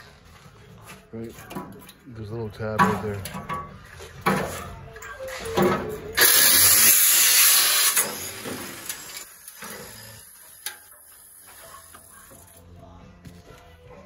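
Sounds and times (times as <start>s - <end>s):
angle grinder cutting sheet steel: 6.2s - 12.1s.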